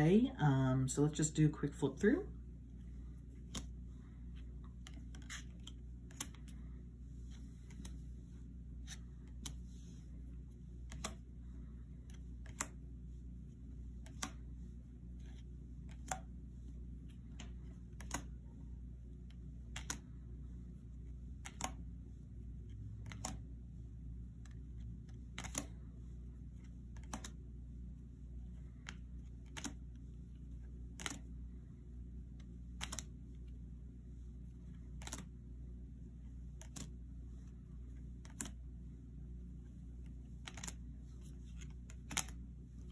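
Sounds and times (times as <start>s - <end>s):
steady low hum: 0.0s - 42.9s
cards snapping down: 3.4s - 3.7s, 4.8s - 6.6s, 10.8s - 11.2s, 12.1s - 12.8s, 14.0s - 14.4s, 17.4s - 18.3s, 19.7s - 20.0s, 21.4s - 21.8s, 23.0s - 23.4s, 25.3s - 25.8s, 27.0s - 27.4s, 28.8s - 29.8s, 31.0s - 31.3s, 32.8s - 33.1s, 35.0s - 35.3s, 36.6s - 36.9s, 38.2s - 38.6s, 40.4s - 40.8s, 41.5s - 42.4s.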